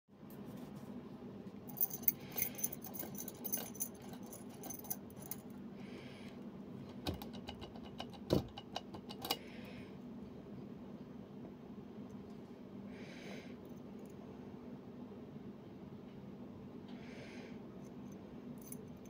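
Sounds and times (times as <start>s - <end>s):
keys jangling: 1.7s - 5.5s, 17.9s - 19.0s.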